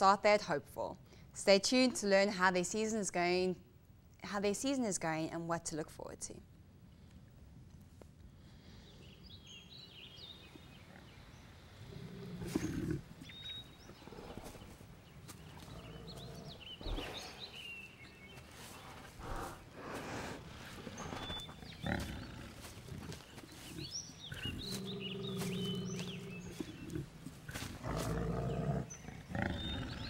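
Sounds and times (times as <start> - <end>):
bear growling: 11.8 - 13.2, 15.4 - 17.8, 19.0 - 30.0
footsteps on dry leaves: 21.9 - 28.5.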